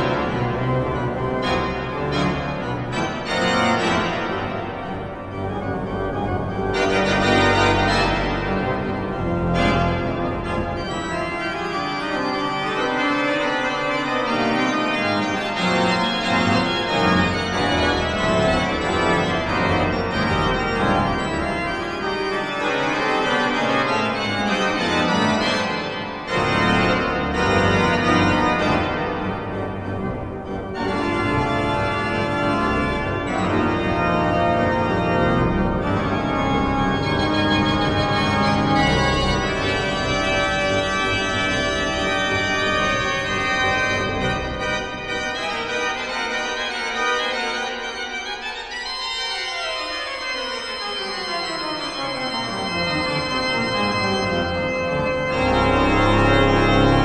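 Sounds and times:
pipe organ playing jazz chords: 0.0 - 57.0.

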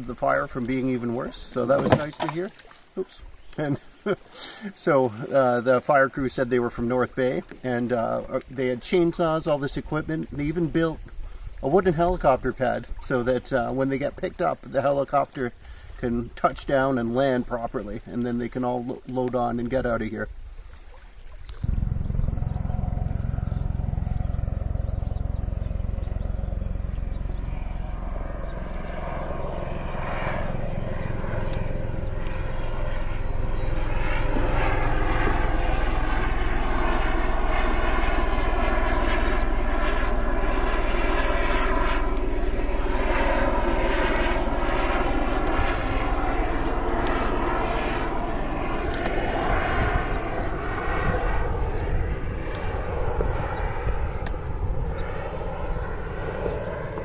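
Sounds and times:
helicopter rotor chopping: 0.0 - 20.3, 21.5 - 57.0.

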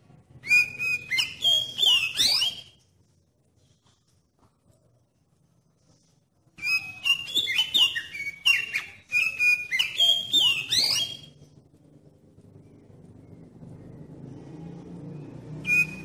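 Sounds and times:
bird singing whistled notes: 0.4 - 2.8, 6.6 - 11.4, 15.2 - 16.0.

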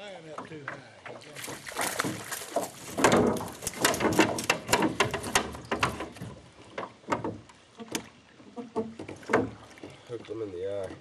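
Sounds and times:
fish splashing in water: 1.2 - 6.2.

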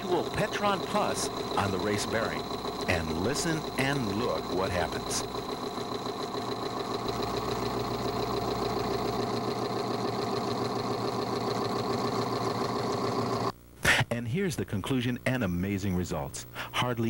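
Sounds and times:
test machine mechanical drone: 0.0 - 13.5.

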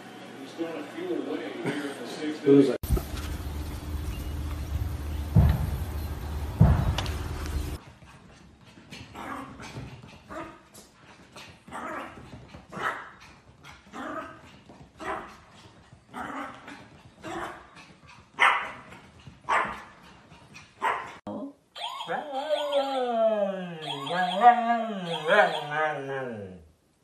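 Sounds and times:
small dog barking: 15.0 - 15.4, 18.4 - 18.9, 19.5 - 19.9, 20.8 - 21.2, 23.8 - 26.1.

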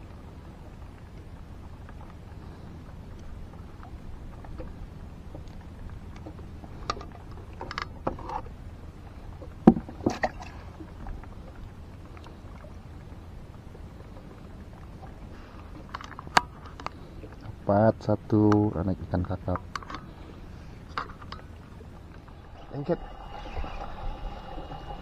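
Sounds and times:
steady low rumble: 8.4 - 25.0.

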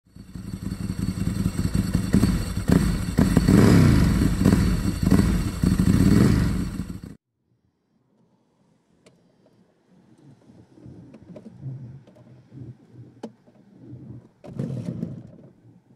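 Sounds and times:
motorcycle engine revving: 0.1 - 7.2.

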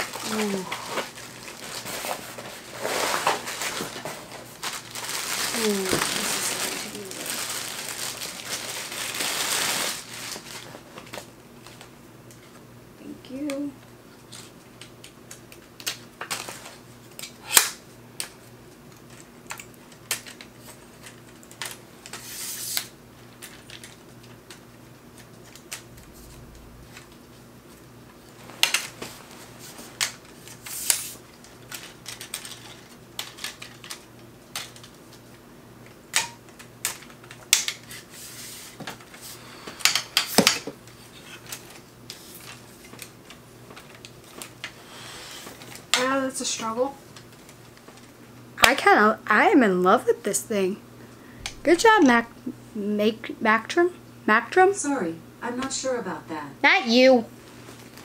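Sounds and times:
plastic packaging rustling: 0.0 - 12.5, 15.8 - 17.4, 18.3 - 35.4, 57.4 - 58.0.

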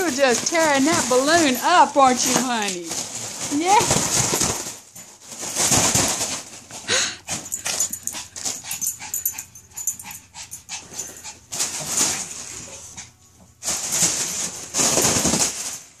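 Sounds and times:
dog scraping at balloon: 0.0 - 9.2.

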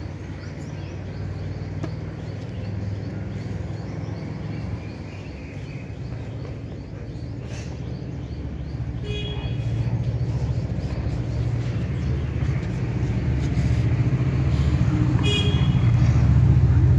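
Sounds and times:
low engine rumble: 0.0 - 16.9
vehicle horn toot: 9.0 - 9.6, 15.2 - 16.0.

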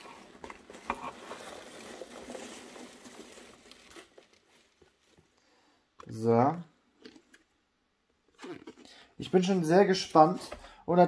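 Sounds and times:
foam packing peanuts rustling: 0.0 - 5.4.

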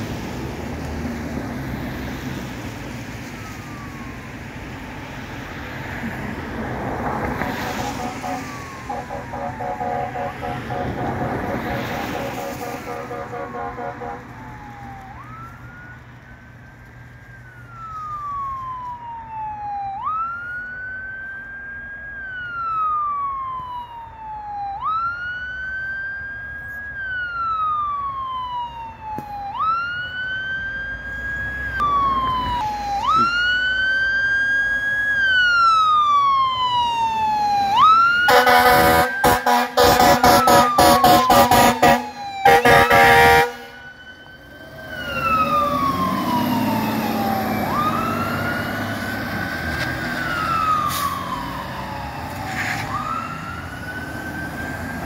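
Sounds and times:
fire engine siren wailing: 0.0 - 55.0
horn short rapid blasts: 7.9 - 11.2, 12.2 - 14.2, 38.3 - 43.7.

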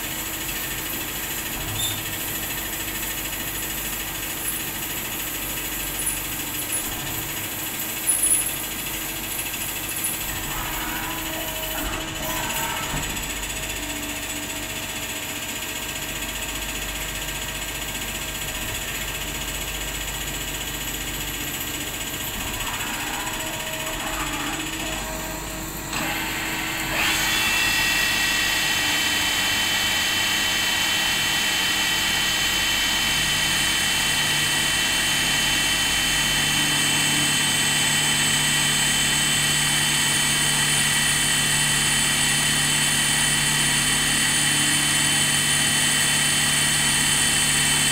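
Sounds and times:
lathe spindle turning: 21.2 - 32.5.

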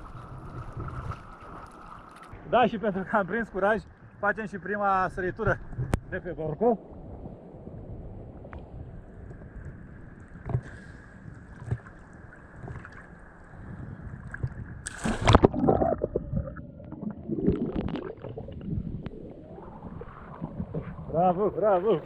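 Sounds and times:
churning bubbling water: 0.0 - 2.4, 14.2 - 21.8
loud splash into water: 14.8 - 16.2.

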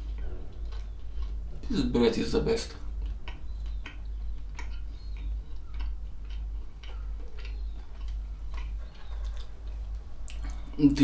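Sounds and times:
bread chewing crunches: 0.0 - 11.0
steady low hum: 0.0 - 11.0.

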